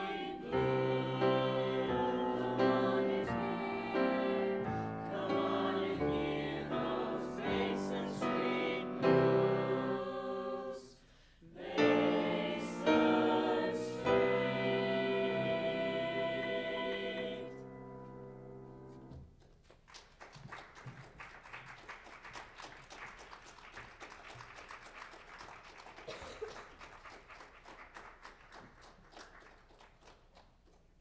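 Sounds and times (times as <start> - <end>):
vocal jazz choir singing: 0.0 - 18.2
audience applause: 19.8 - 30.5.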